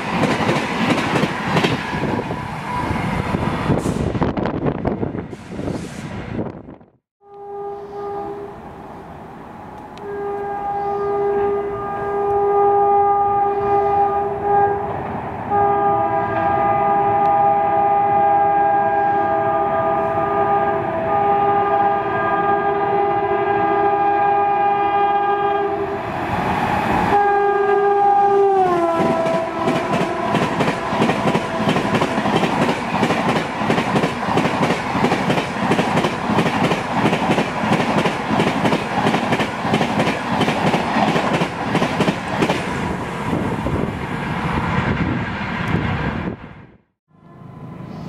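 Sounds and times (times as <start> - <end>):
locomotive horn blowing: 7.2 - 8.6, 10.0 - 26.0, 27.1 - 32.2
train wheels clacking over rail joints: 29.0 - 42.7.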